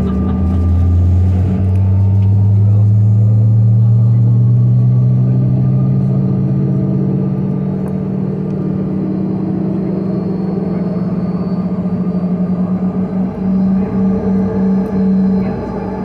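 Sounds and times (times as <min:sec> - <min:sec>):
jet cabin engine hum: 0:00.0 - 0:16.0
faint high whine: 0:08.6 - 0:16.0.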